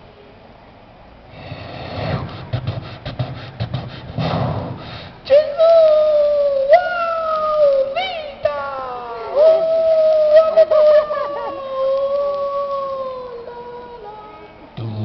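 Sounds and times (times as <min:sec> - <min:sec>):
breathy sounds: 0:01.3 - 0:05.2.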